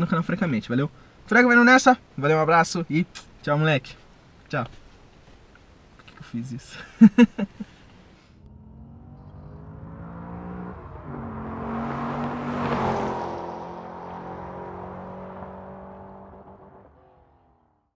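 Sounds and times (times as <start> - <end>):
car engine passing by: 8.4 - 17.5.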